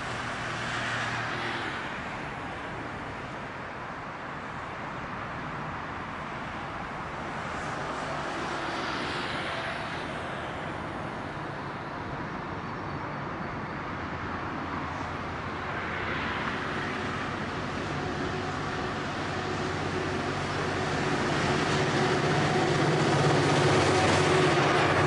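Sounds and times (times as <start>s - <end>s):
locomotive engine drone: 5.3s - 25.0s.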